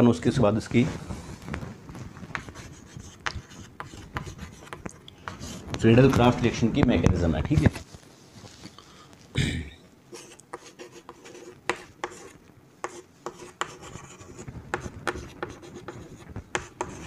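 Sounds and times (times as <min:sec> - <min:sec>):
chalk on chalkboard: 0:02.3 - 0:05.6, 0:10.1 - 0:17.0.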